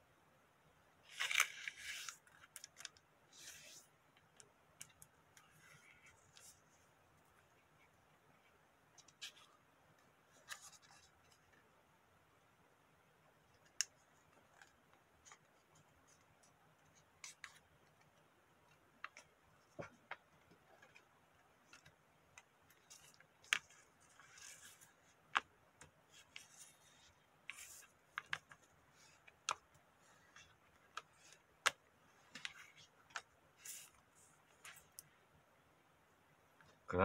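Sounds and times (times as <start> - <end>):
paper rustling: 1.0 - 3.9, 18.6 - 35.0
paper folding taps and clicks: 13.5 - 35.2.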